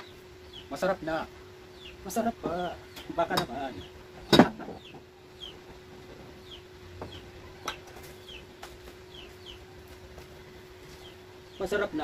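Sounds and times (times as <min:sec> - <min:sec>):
bird peeping: 0:00.0 - 0:00.8, 0:01.6 - 0:12.0
steady low hum: 0:00.0 - 0:12.0.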